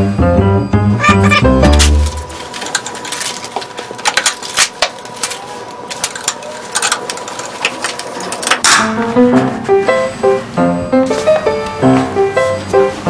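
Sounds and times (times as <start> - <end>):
plucked-string music: 0.1 - 2.4.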